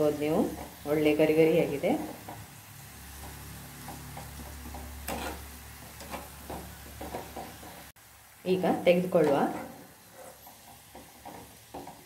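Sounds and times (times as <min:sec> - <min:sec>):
onions sizzling in oil: 0:00.0 - 0:12.0
strainer scraping and tapping pan: 0:03.2 - 0:07.9, 0:09.2 - 0:12.0.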